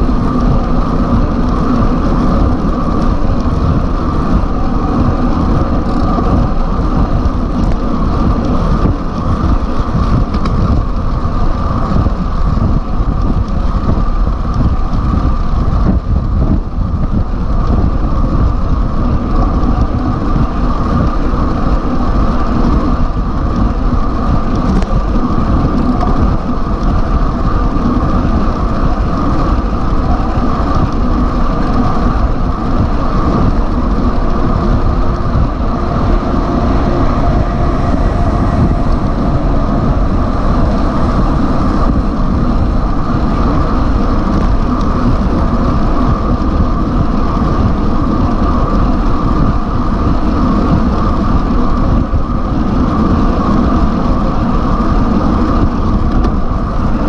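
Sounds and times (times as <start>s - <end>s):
truck passing: 0.0s - 10.0s, 31.2s - 47.6s
tyre and traffic rumble: 0.0s - 57.0s
wind rush on microphone: 0.0s - 57.0s.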